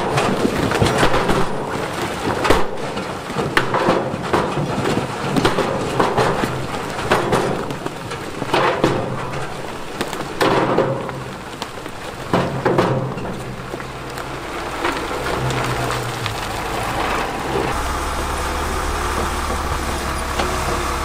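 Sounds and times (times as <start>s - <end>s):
big stones tumbling and crashing: 0.0s - 21.0s
diesel engine humming: 11.1s - 21.0s.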